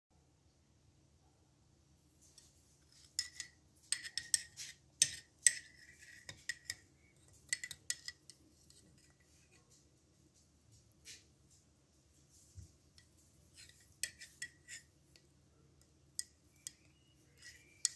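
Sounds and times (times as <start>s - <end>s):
metal spoon clinking in mug: 3.0s - 6.8s, 7.5s - 9.1s, 16.2s - 17.9s.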